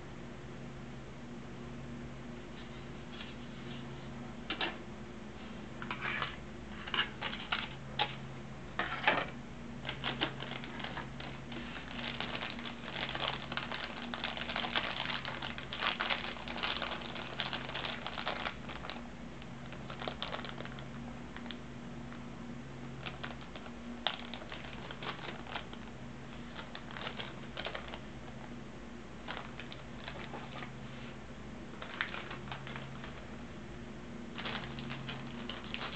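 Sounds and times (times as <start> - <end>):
steady low hum: 0.0 - 35.9
plastic bag crinkling: 9.8 - 21.5, 23.0 - 28.4, 29.2 - 30.7, 31.7 - 33.3, 34.3 - 35.9.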